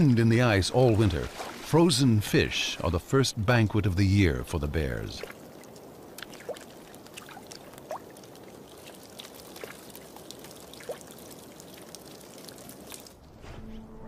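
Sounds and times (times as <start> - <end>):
small water splashes and drips: 0.8 - 1.7, 5.2 - 13.3
meltwater trickling over ice: 5.2 - 13.4.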